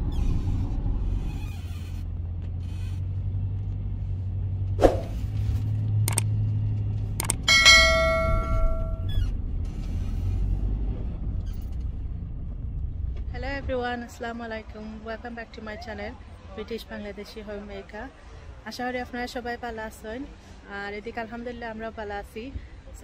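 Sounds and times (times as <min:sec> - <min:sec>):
van engine and road noise: 0:00.0 - 0:23.0
sharp clicks: 0:06.1 - 0:06.3, 0:07.2 - 0:07.5
bright bell chime: 0:07.5 - 0:09.1.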